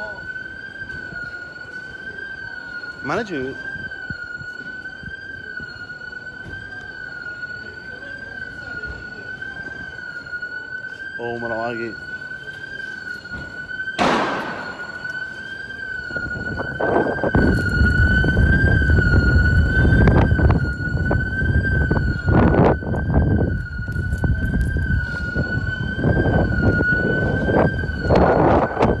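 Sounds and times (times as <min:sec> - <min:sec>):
high electronic alarm tone: 0:00.0 - 0:29.0
heavy low rumbling: 0:14.0 - 0:29.0.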